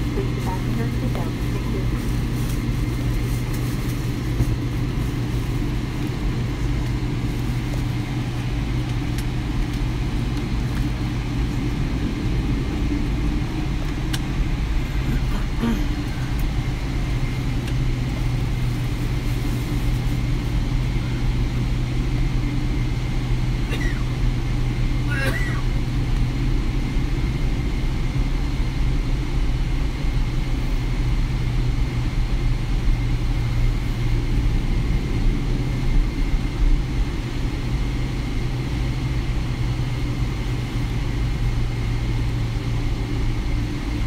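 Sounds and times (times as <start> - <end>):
airliner cabin drone: 0.0 - 44.0.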